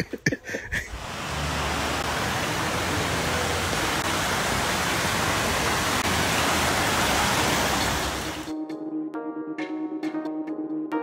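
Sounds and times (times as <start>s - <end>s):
water falling and splashing: 0.9s - 8.5s.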